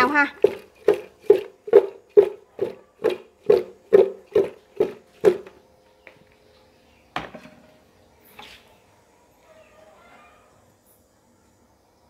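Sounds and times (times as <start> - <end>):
food tossed in metal pot: 0.3 - 5.4.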